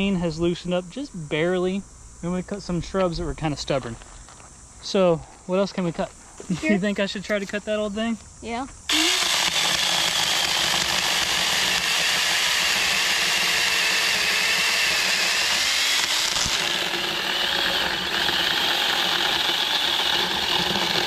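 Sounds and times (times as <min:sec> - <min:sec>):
electric chainsaw whining: 0:08.9 - 0:21.0.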